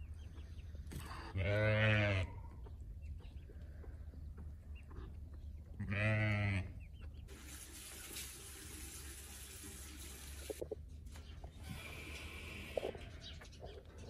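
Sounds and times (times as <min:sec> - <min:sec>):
farm animal call: 0:01.0 - 0:02.8, 0:05.7 - 0:07.0, 0:11.6 - 0:13.8.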